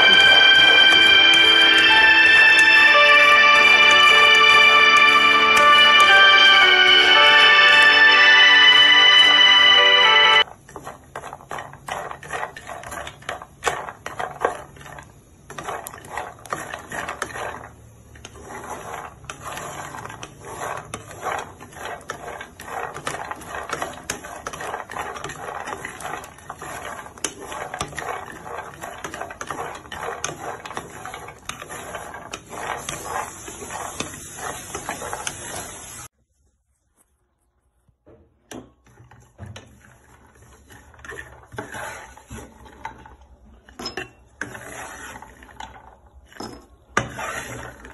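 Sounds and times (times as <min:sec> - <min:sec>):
nuts rattling in frying pan: 0:10.4 - 0:36.1.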